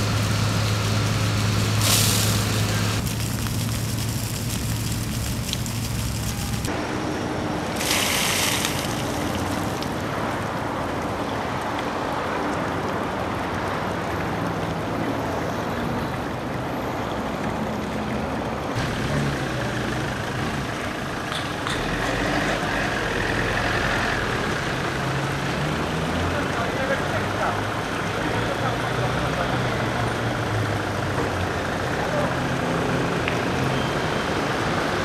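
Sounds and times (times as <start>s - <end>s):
fountain water splashing: 0.0s - 6.8s, 7.4s - 35.0s
road traffic: 0.0s - 35.0s
short sharp hiss: 1.7s - 3.0s.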